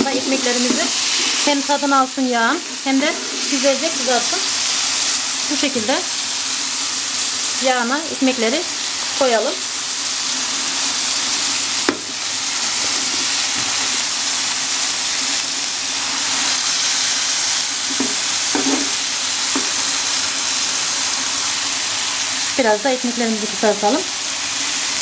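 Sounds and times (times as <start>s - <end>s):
food sizzling in hot oil: 0.0s - 25.0s
sharp tap on pan: 11.9s - 12.2s, 17.9s - 19.8s.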